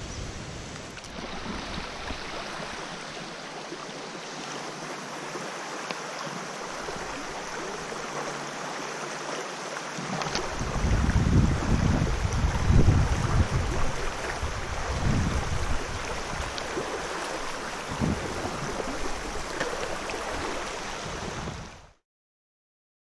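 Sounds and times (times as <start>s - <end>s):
stream running over rocks: 0.2s - 22.0s
wind buffeting microphone: 10.3s - 21.8s.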